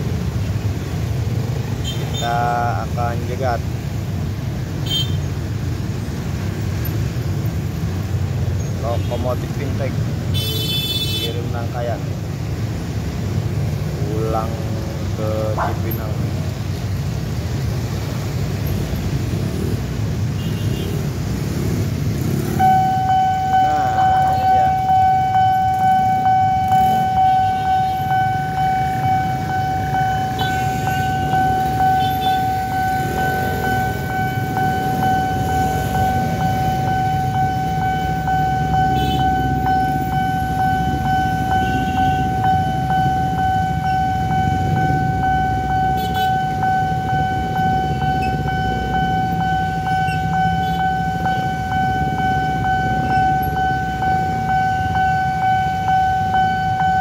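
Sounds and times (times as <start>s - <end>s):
level crossing alarm tone: 22.2s - 57.0s.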